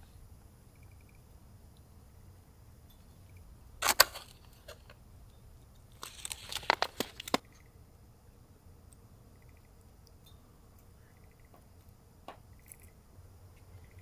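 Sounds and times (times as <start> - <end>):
objects rustling: 5.9 - 7.4.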